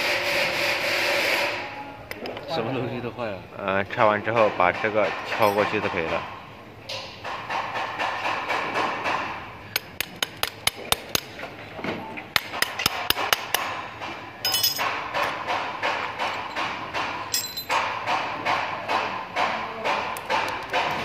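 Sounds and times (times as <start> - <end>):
hammer striking metal axle: 4.8 - 6.2, 12.4 - 21.0.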